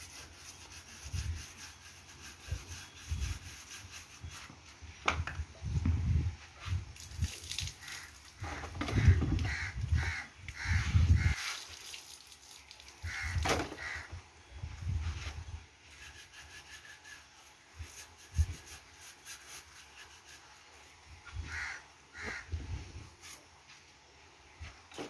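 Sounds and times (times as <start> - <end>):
crows cawing: 7.8 - 11.6, 13.0 - 14.2, 21.4 - 22.6.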